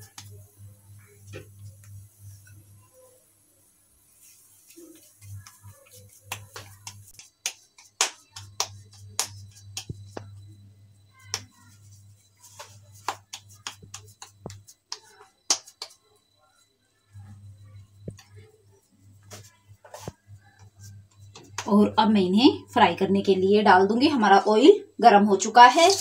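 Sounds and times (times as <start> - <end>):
hands patting dough: 0.0 - 2.7, 4.0 - 16.2, 17.5 - 22.0.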